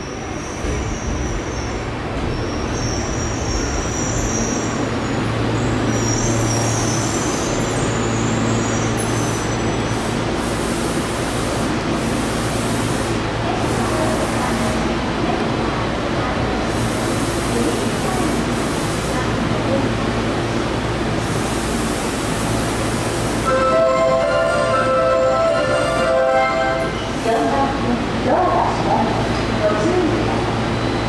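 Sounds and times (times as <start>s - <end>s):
train braking to a stop: 0.0s - 10.6s, 23.2s - 27.8s, 30.4s - 31.0s.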